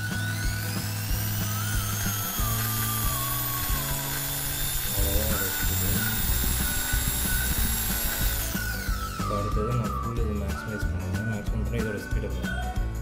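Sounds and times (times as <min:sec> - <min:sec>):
electric drill motor whine: 0:00.0 - 0:11.4.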